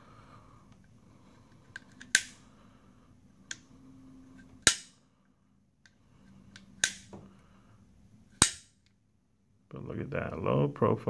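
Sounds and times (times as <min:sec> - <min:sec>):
metal sight snapping into place: 0:01.8 - 0:02.4, 0:04.6 - 0:04.9, 0:06.6 - 0:07.2, 0:08.4 - 0:08.7.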